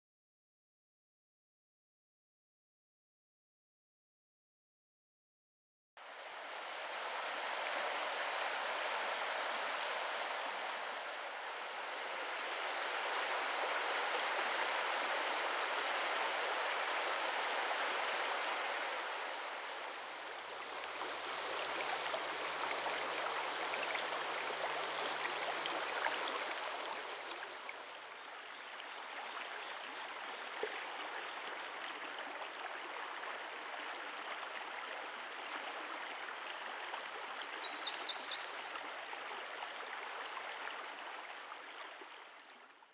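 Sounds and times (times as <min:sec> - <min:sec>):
river water rushing: 0:06.0 - 0:42.4.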